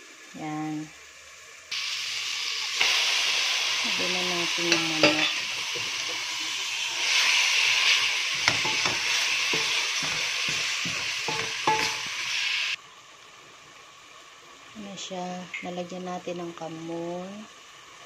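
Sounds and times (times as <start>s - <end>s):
chicken sizzling in hot oil: 0.0s - 18.0s
spatula scraping a metal pot: 4.7s - 12.5s.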